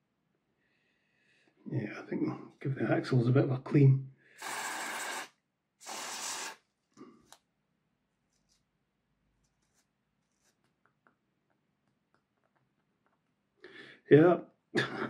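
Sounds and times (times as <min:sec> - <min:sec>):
aerosol spray hissing: 0:04.4 - 0:06.6.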